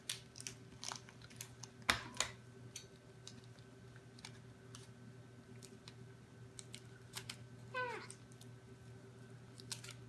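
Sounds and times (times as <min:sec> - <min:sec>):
plastic packaging crinkling: 0:00.0 - 0:02.2, 0:09.5 - 0:10.0
faint steady hum: 0:00.0 - 0:10.0.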